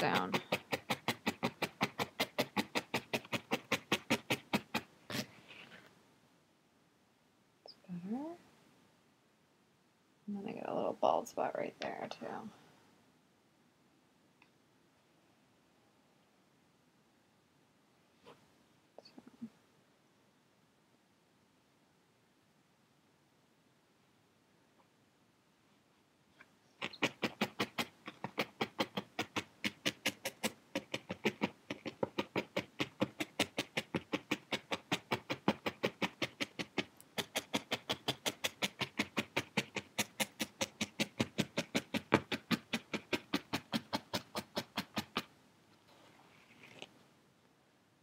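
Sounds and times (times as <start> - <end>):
felting needle soft punches: 0.0 - 4.9.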